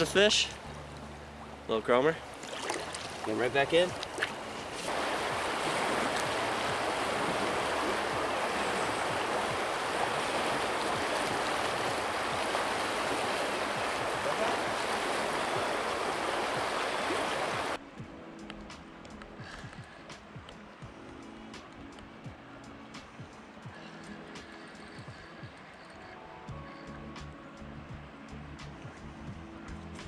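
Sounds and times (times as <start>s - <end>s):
river water rushing: 0.0s - 17.8s.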